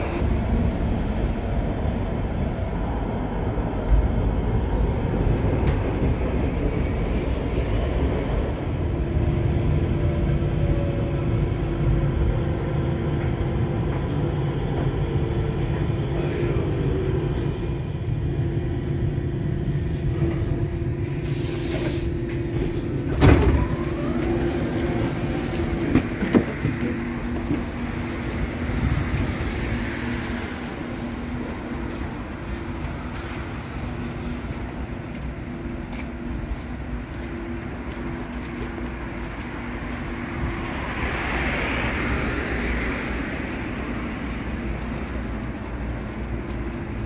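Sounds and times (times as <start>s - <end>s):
train interior rumble: 0.0s - 47.0s
door opening clunk: 22.7s - 24.2s.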